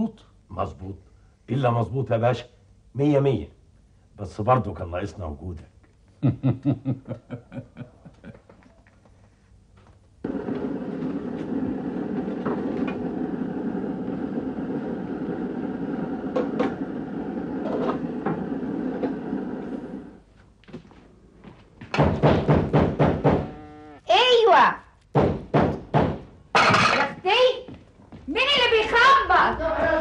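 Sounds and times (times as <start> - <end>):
pressure stove burning: 10.2 - 20.3
clatter of pots and lids: 26.6 - 27.2.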